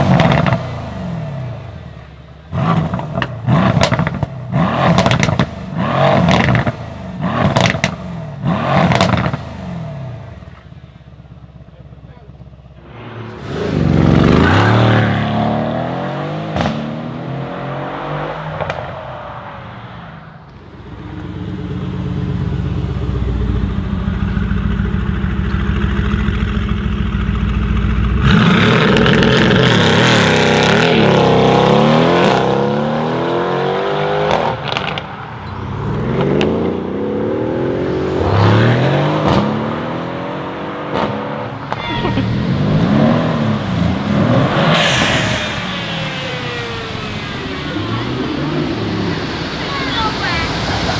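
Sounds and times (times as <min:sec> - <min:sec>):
cars accelerating past: 0:12.8 - 0:25.0, 0:28.2 - 0:50.9.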